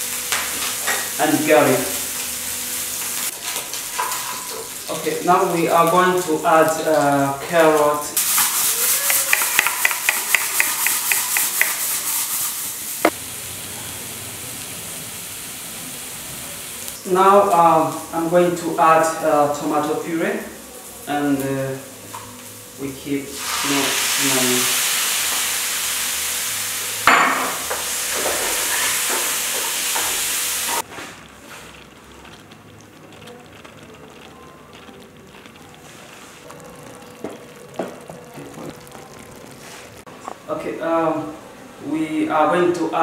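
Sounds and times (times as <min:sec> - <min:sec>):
mince sizzling: 0:00.0 - 0:42.0
spatula scraping frying pan: 0:08.2 - 0:12.7, 0:27.6 - 0:31.8.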